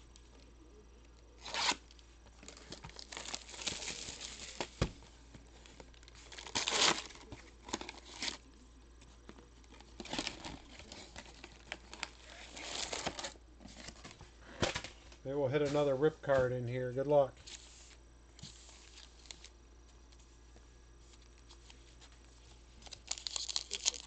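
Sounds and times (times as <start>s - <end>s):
packaging torn and crinkled: 1.4s - 4.7s, 5.8s - 8.6s, 9.6s - 13.4s, 22.8s - 24.0s.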